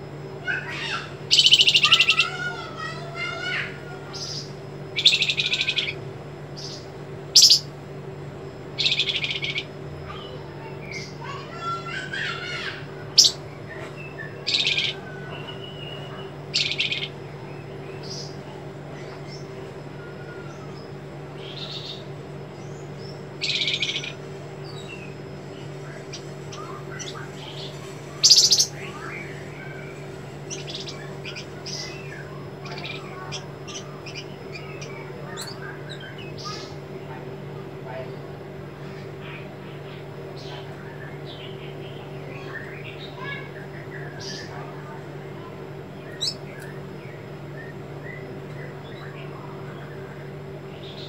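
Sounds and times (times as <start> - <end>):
songbird buzzing trills: 0.0 - 51.0
steady low hum: 0.0 - 51.0
sharp bird notes: 0.5 - 6.0, 6.6 - 7.7, 21.4 - 36.9.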